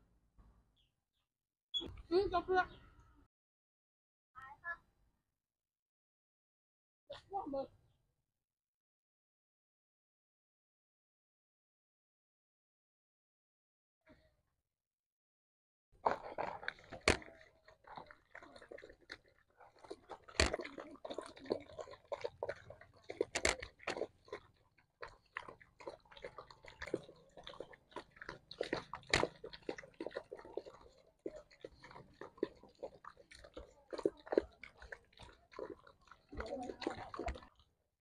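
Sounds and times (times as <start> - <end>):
dogs chewing and smacking: 16.0 - 37.8.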